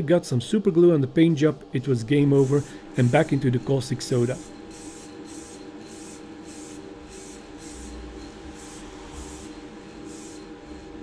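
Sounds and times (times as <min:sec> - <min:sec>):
extraction fan humming: 0:00.0 - 0:11.0
aerosol spray hissing: 0:02.2 - 0:10.9.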